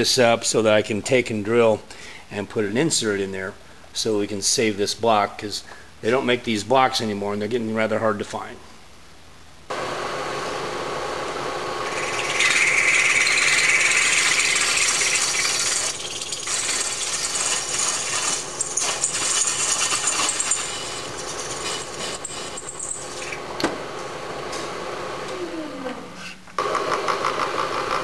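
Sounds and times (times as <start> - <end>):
drill bit cutting metal: 11.9 - 23.0.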